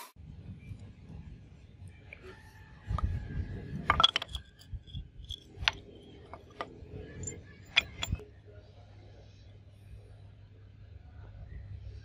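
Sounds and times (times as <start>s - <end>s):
metal pieces clicking on plastic pipe: 3.8s - 8.2s.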